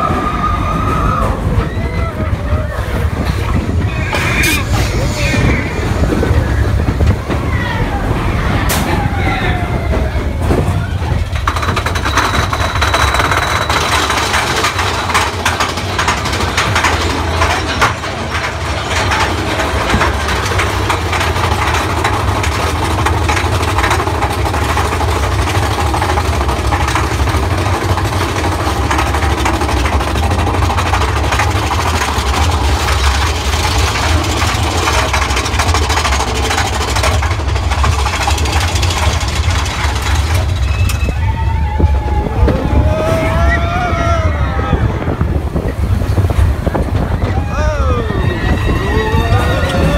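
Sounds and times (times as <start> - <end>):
roller coaster rumbling on track: 0.0 - 49.9
rapid clacking of wheels and chain: 10.5 - 42.4.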